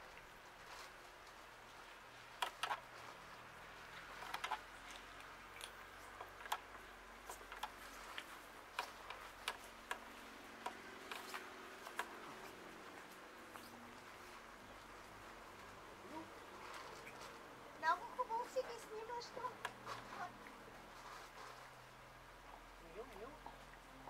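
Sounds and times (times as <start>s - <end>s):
cats chewing food: 0.4s - 17.7s.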